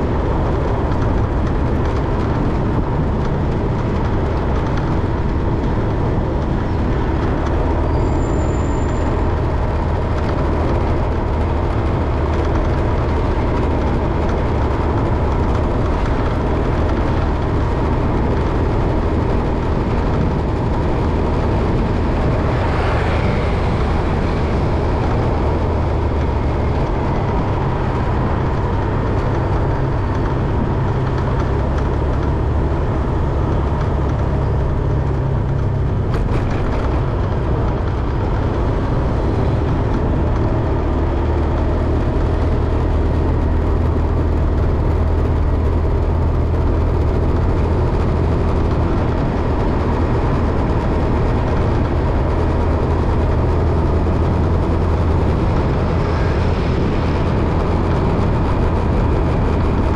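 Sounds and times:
moving vehicle rumble: 0.0 - 59.9.

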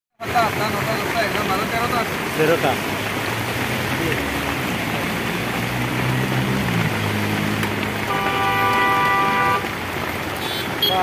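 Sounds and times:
rain hiss: 0.2 - 11.0
vehicle droning past: 3.4 - 9.9.

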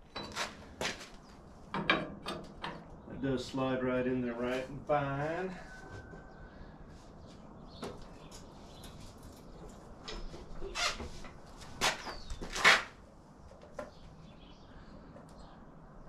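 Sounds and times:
metallic knocks and scrapes: 0.0 - 0.6, 1.7 - 2.9
birds chirping faintly: 5.8 - 12.7, 13.3 - 16.0.

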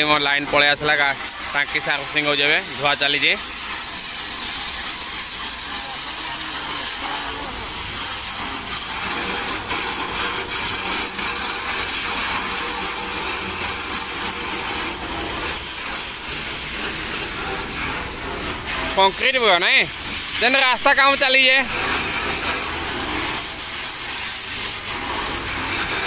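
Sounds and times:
pressure washer spray on metal: 0.0 - 26.0.

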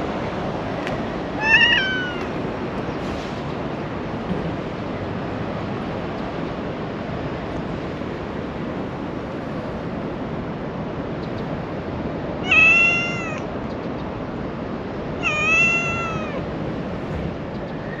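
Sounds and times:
outdoor background noise: 0.0 - 18.0
cat meowing: 1.4 - 2.4, 12.4 - 13.5, 15.2 - 16.5.

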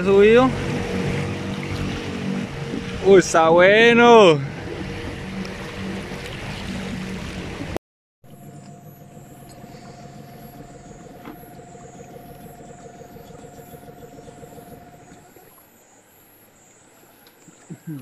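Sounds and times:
motor humming with rapid flutter: 0.0 - 3.2, 4.4 - 15.7.

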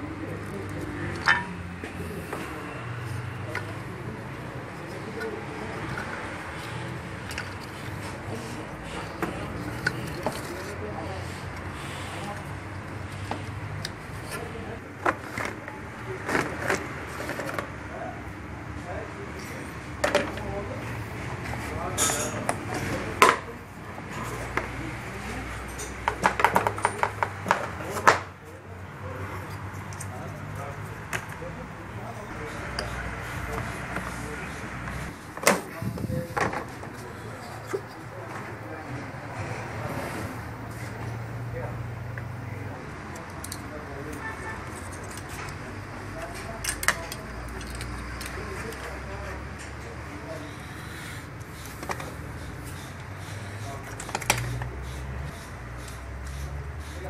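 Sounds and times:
plastic parts clicking and knocking: 7.2 - 8.1, 13.2 - 17.8, 25.8 - 28.3, 46.2 - 48.9, 53.8 - 54.7.

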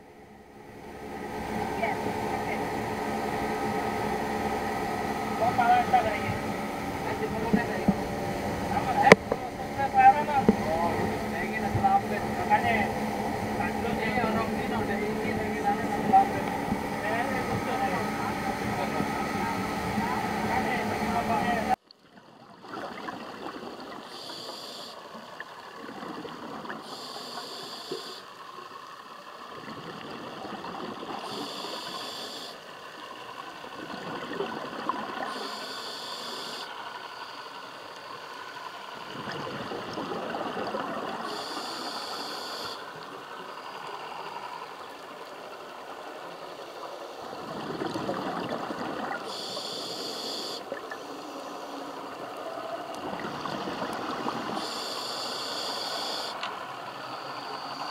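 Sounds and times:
exhaled bubbles rushing: 22.1 - 24.2, 25.0 - 27.1, 29.4 - 31.6, 33.1 - 35.4, 38.9 - 41.8, 42.9 - 49.5, 51.9 - 54.9
regulator hiss on inhalation: 24.1 - 25.0, 26.9 - 28.3, 31.3 - 32.6, 35.2 - 36.8, 41.3 - 42.9, 49.2 - 51.8, 54.6 - 56.4.

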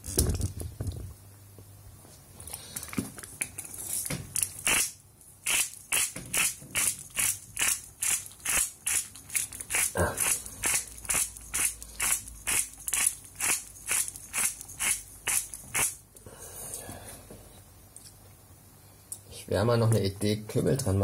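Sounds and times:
salt mill grinding salt: 3.8 - 16.0.

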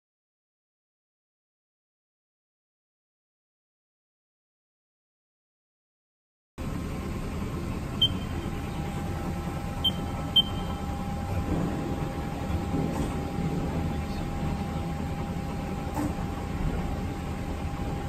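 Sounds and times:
low machinery hum: 6.6 - 18.0
faint constant tone: 7.9 - 11.3
short high keypad beeps: 8.0 - 8.4, 9.8 - 10.8.

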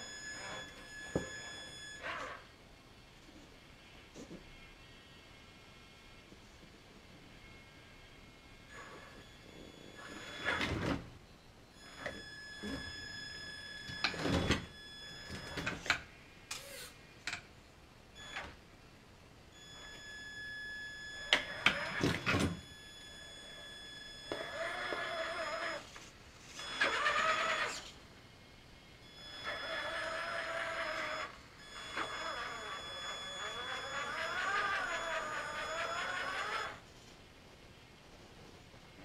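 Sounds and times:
electric motor whining: 0.0 - 2.5, 8.7 - 11.0, 11.8 - 15.9, 19.6 - 28.0, 29.1 - 36.8.

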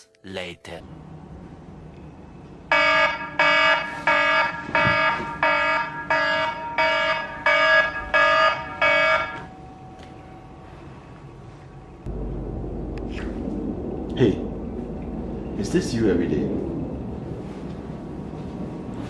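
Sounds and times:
phone alarm ringtone: 2.7 - 9.5.

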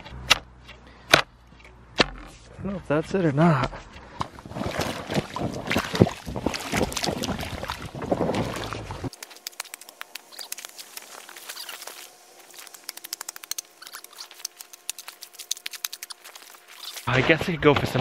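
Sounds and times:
boots wading through slushy puddle: 4.2 - 13.1, 13.9 - 17.1.

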